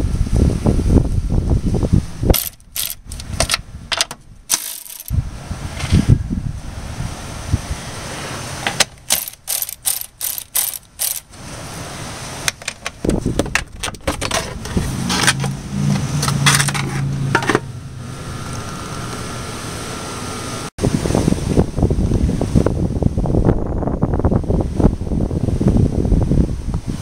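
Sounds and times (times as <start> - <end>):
hand ratchet clicking: 2.4 - 3.6, 4.5 - 5.2, 9.0 - 11.2
low hum: 14.3 - 20.7.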